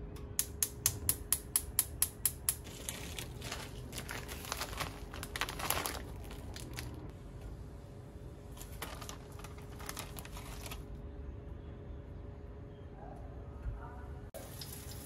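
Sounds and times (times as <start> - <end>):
plastic bag crinkling: 2.6 - 7.1, 8.5 - 10.9.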